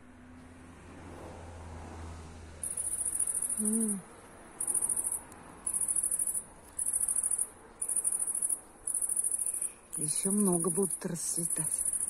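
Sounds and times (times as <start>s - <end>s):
cricket trilling: 2.6s - 12.0s
low voice-like hum: 3.6s - 4.1s.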